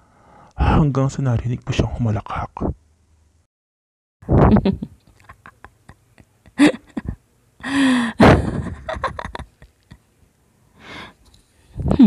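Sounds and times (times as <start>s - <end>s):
woman's breathy gasping cackle: 6.5s - 9.4s.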